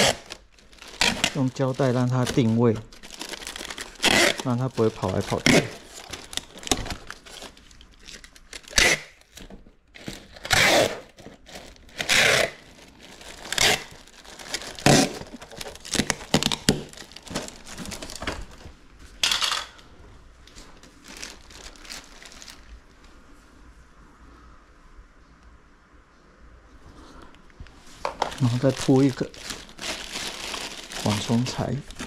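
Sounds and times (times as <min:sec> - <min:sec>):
plastic packing crinkling: 0:00.0 - 0:19.8, 0:20.4 - 0:23.1, 0:28.0 - 0:32.0.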